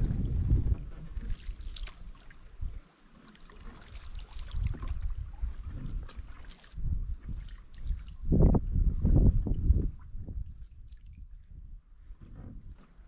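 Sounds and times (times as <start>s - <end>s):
paddle stroking through water: 0.0s - 8.0s
water trickling and splashing: 0.0s - 11.3s.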